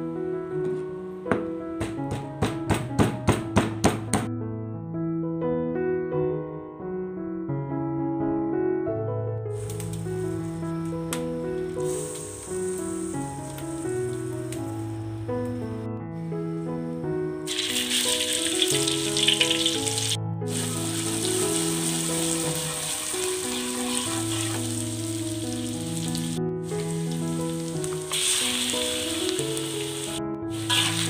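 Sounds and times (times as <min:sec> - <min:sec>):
background music: 0:00.0 - 0:31.0
paste sizzling in hot oil: 0:09.6 - 0:15.2, 0:17.5 - 0:31.0.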